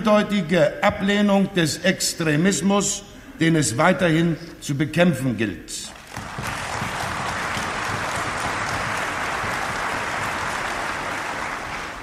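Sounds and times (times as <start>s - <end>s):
people applauding: 5.9s - 12.0s.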